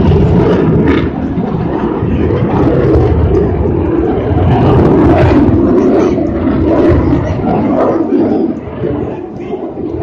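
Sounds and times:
jet engine roar: 0.0 - 10.0.

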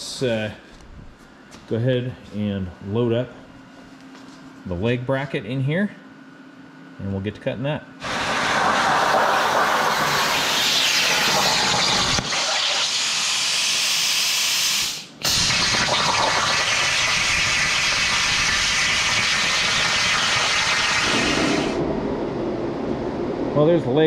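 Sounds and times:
plasma torch hiss: 8.0 - 21.8.

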